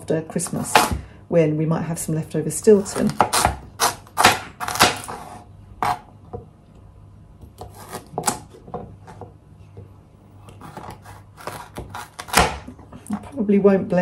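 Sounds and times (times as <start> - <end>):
knife chopping on plastic board: 2.7 - 5.2, 5.8 - 6.1, 10.4 - 12.8.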